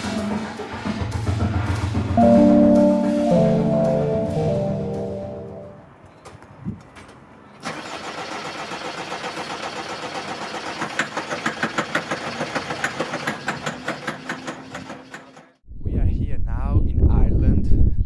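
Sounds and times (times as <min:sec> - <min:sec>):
diesel engine cranking: 0:07.6 - 0:15.5.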